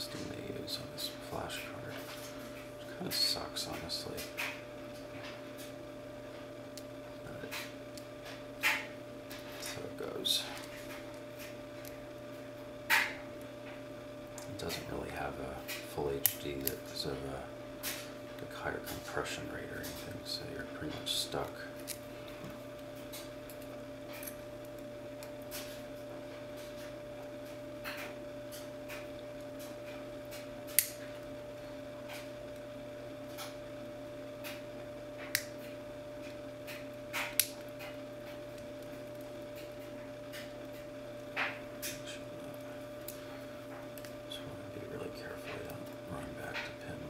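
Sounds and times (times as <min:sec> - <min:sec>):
steady hum: 0:00.0 - 0:47.0.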